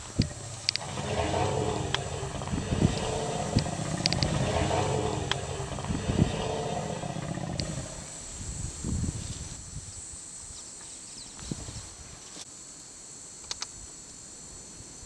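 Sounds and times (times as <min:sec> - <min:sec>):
elephants rumbling: 0:00.0 - 0:08.2.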